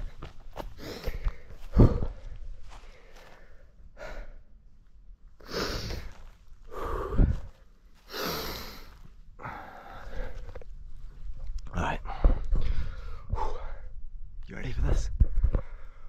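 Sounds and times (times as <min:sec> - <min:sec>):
person breathing heavily: 0:00.0 - 0:04.6, 0:05.4 - 0:10.8, 0:12.0 - 0:14.0, 0:15.3 - 0:16.0.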